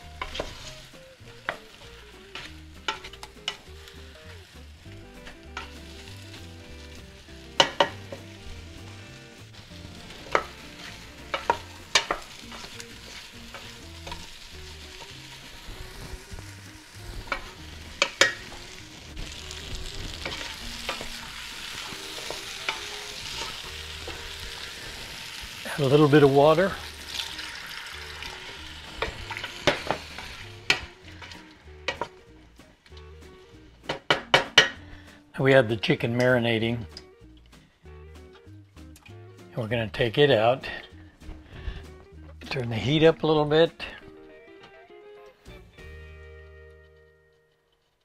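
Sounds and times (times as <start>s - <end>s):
potatoes sizzling in a pot: 0.0s - 44.0s
utensil scraping and knocking pot: 10.2s - 14.4s, 17.2s - 24.8s, 25.8s - 32.1s.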